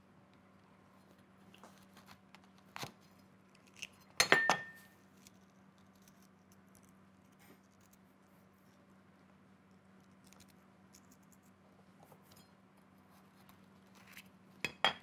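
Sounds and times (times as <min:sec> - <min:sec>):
cleaver clatter with metallic ring: 0:04.2 - 0:04.8.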